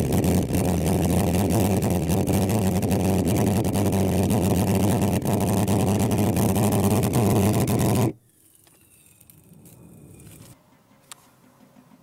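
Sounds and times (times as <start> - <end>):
pulse jet droning: 0.0 - 8.2.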